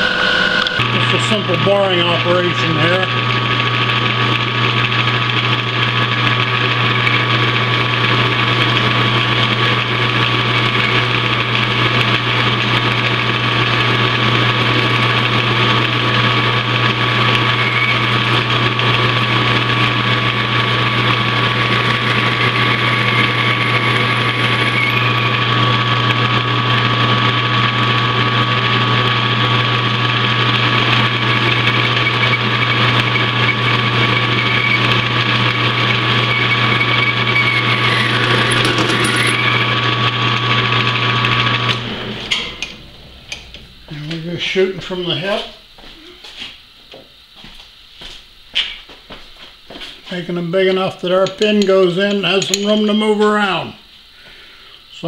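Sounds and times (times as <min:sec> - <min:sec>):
metal lathe hum: 0:00.0 - 0:45.9, 0:50.9 - 0:55.0.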